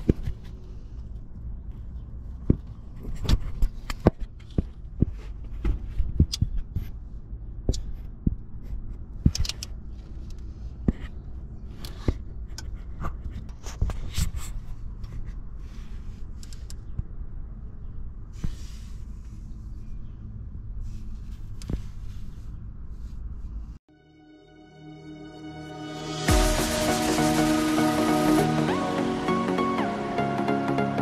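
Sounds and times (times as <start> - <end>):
steady low engine rumble: 0.0 - 23.9.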